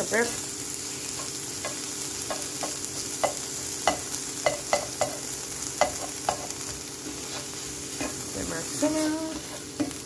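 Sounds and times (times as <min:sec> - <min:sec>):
vegetables sizzling in oil: 0:00.0 - 0:10.0
spatula scraping the pan: 0:05.8 - 0:10.0.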